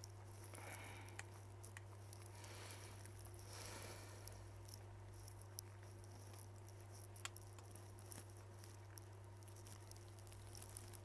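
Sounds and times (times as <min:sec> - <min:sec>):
faint clicks and taps: 0:00.0 - 0:02.4, 0:04.2 - 0:11.0
low electrical hum: 0:00.0 - 0:11.0.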